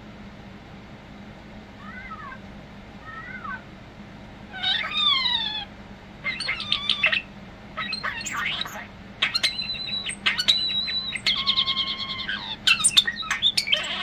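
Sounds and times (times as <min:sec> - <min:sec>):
starling meow-like call: 0:01.8 - 0:02.4, 0:04.5 - 0:14.0
starling whistles: 0:06.2 - 0:14.0.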